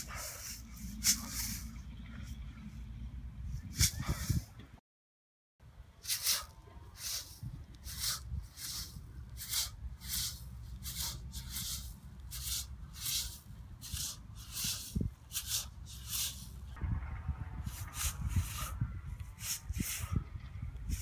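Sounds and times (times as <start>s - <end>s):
hissing swishes of swings: 0.0s - 4.7s, 6.0s - 16.9s, 17.6s - 21.0s
steady low rumble: 0.0s - 4.8s, 5.6s - 21.0s.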